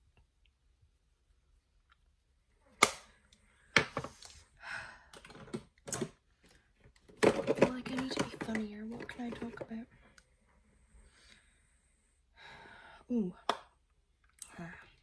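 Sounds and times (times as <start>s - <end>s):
makeup brushes and cases clicking: 7.0s - 9.8s.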